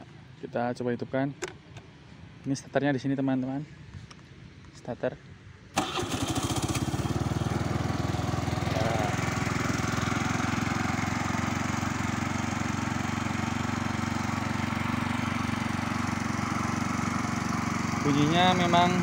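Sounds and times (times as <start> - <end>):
scooter engine idling: 5.8 - 19.0.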